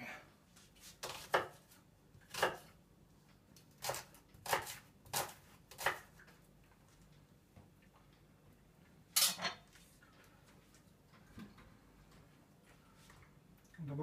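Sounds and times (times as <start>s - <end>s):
knife chopping on wooden board: 1.0s - 1.6s, 2.3s - 2.6s, 3.8s - 6.1s.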